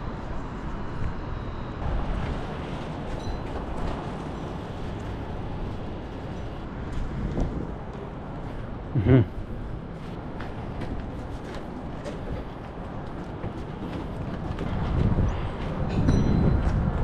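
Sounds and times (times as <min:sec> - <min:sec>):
faint city hum: 0:00.0 - 0:17.0
wind buffeting microphone: 0:00.0 - 0:17.0.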